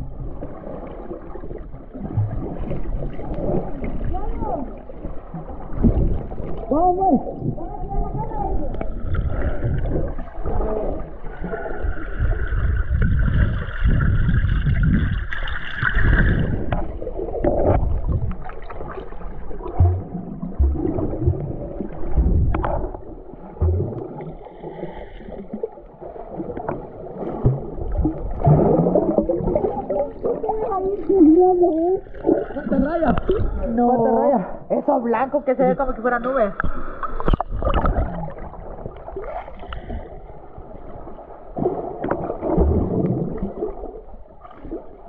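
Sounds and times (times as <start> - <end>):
water sloshing and gurgling underwater: 0.0 - 45.0
thumps and pops: 19.7 - 21.6, 23.6 - 24.2.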